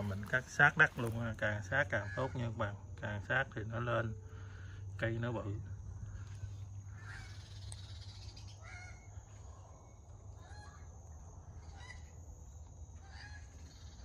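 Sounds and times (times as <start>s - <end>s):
faint bird calls: 0.0s - 14.0s
steady low hum: 0.0s - 14.0s.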